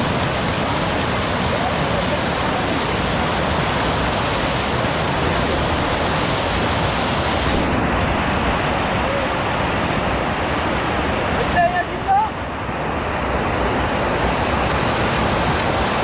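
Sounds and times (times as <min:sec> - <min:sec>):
water rushing: 0:00.0 - 0:16.0.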